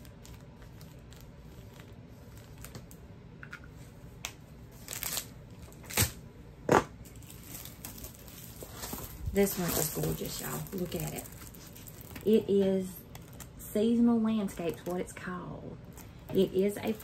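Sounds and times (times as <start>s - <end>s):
plastic packaging crinkling: 0.0s - 3.0s, 4.7s - 6.2s, 7.0s - 13.6s, 14.4s - 15.2s, 15.8s - 17.0s.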